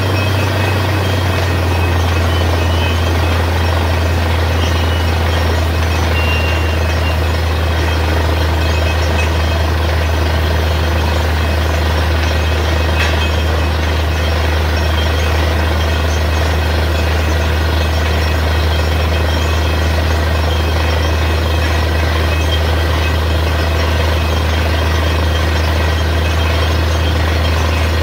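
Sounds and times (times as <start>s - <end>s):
drilling rig engine running: 0.0s - 28.0s.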